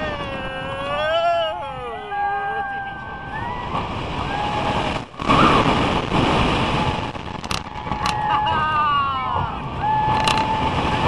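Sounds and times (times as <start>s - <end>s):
roller coaster rumble: 0.0s - 11.0s
wind rushing over microphone: 0.0s - 11.0s.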